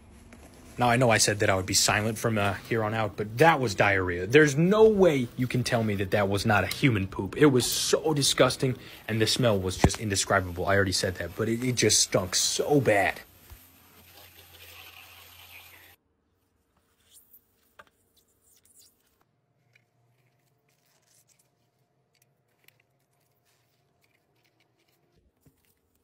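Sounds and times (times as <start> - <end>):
hose nozzle spraying water: 1.0 - 16.0.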